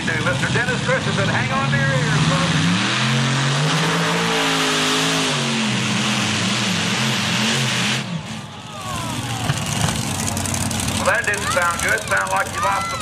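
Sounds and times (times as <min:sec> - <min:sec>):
tractor engine under load: 0:05.7 - 0:13.0.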